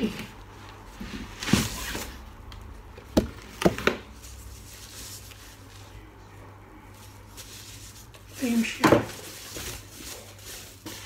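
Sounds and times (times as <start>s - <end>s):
cardboard scraping rustle: 0.9s - 2.3s, 7.3s - 11.0s.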